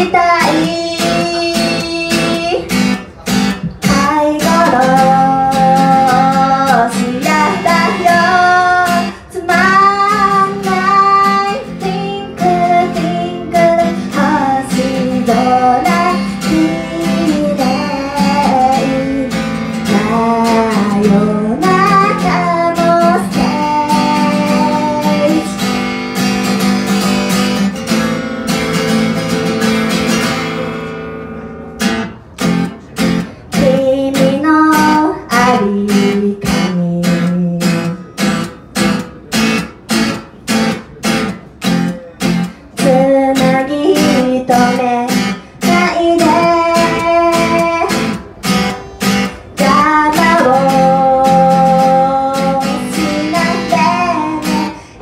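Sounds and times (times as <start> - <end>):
woman singing: 0.0 - 2.8, 3.8 - 26.3, 33.5 - 38.3, 42.8 - 55.0
acoustic guitar strumming: 0.0 - 55.0.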